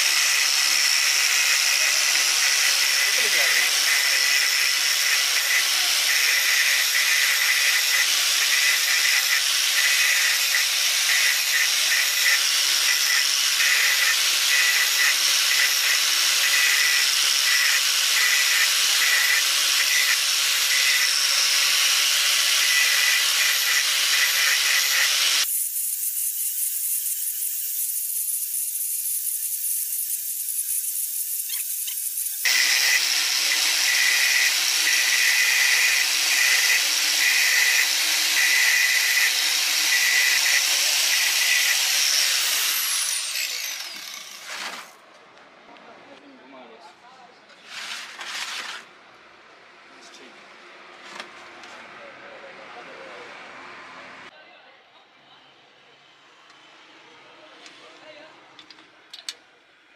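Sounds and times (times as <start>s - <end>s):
angle grinder grinding steel: 0.0s - 45.0s.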